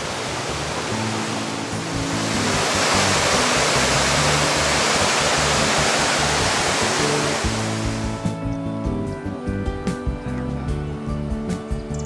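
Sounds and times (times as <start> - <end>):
flooded creek rushing: 0.0 - 8.2.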